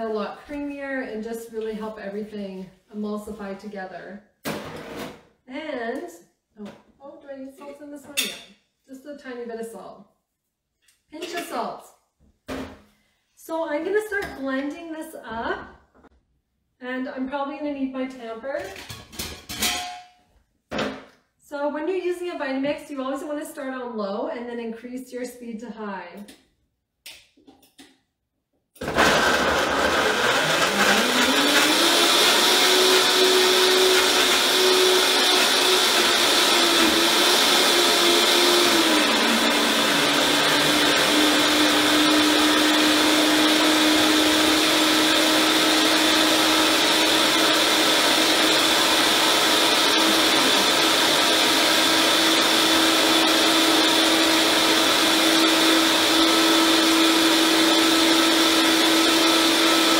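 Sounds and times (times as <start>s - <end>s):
blender motor running: 28.8s - 59.9s.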